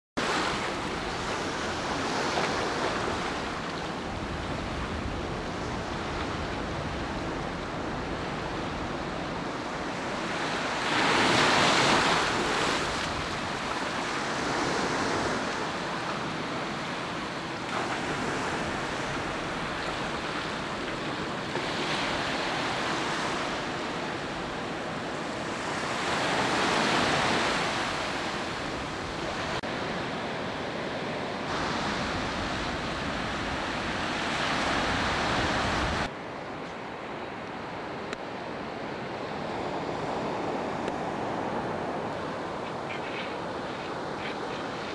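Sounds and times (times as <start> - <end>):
waves breaking on beach: 0.2 - 44.9.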